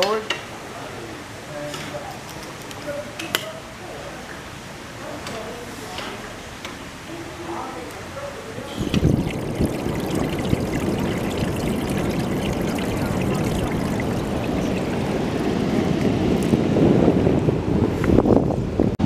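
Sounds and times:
seawater washing over rubble: 0:08.8 - 0:15.7.

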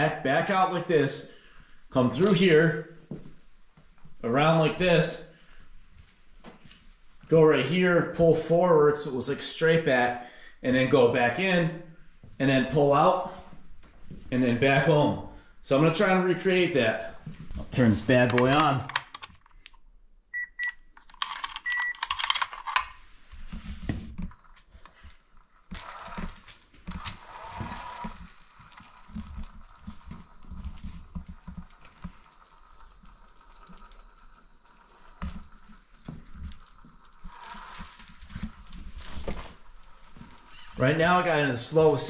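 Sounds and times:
short electronic beeps: 0:20.3 - 0:20.8, 0:21.6 - 0:22.0
electric motor high whine: 0:24.6 - 0:41.3.

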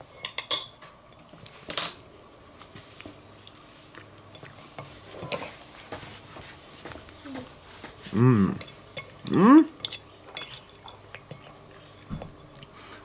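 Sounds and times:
person chewing cake: 0:02.4 - 0:05.6, 0:06.9 - 0:13.0.

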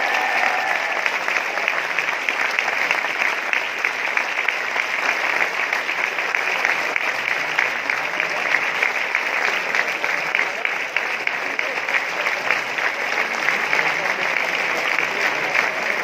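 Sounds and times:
large audience applauding: 0:00.0 - 0:16.0.

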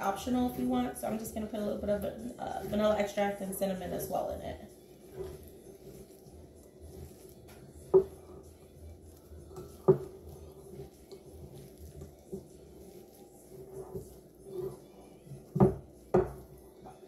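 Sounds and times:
wooden spoon stirring dough: 0:00.0 - 0:17.0.

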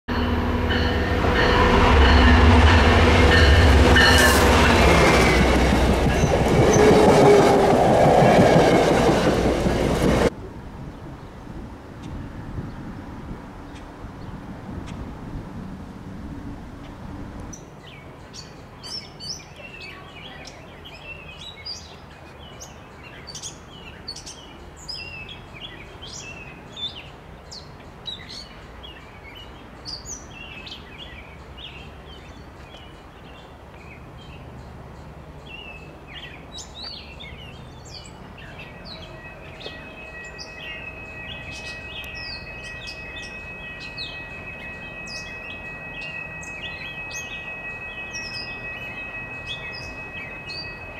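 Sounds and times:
distant train horn chord: 0:00.1 - 0:10.0, 0:38.3 - 0:50.9
diesel train rumbling: 0:00.1 - 0:11.7, 0:34.0 - 0:50.9
songbirds chirping: 0:17.5 - 0:50.9.

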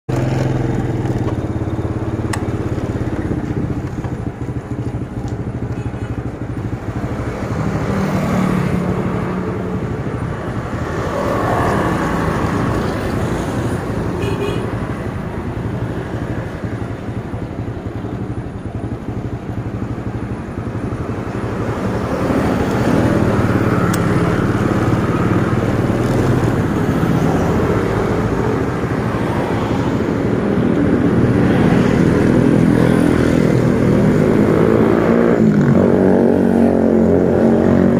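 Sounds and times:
motorcycle engine running: 0:00.1 - 0:29.4
cars and motorbikes passing: 0:00.1 - 0:37.9.

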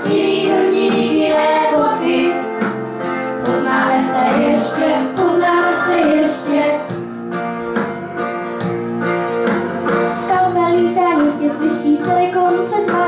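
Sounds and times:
children singing: 0:00.0 - 0:07.0.

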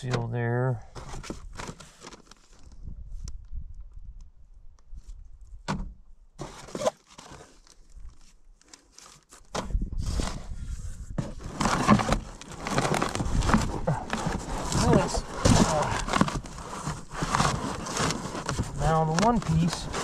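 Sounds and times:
cardboard box rustling: 0:00.9 - 0:02.7, 0:06.4 - 0:20.0
plastic bags crinkling: 0:11.2 - 0:20.0.

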